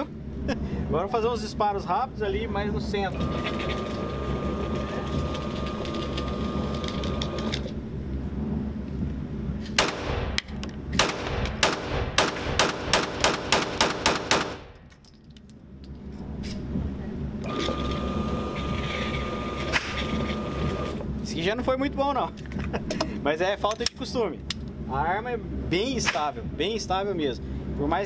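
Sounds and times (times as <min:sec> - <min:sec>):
steady background noise: 0:00.0 - 0:28.0
pistol shots: 0:09.8 - 0:14.8.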